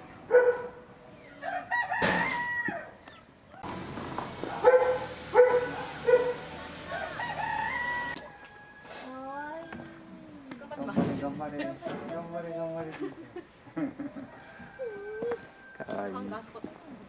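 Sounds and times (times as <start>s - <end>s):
rooster crowing: 1.4s - 3.0s, 4.6s - 10.2s, 14.2s - 16.2s.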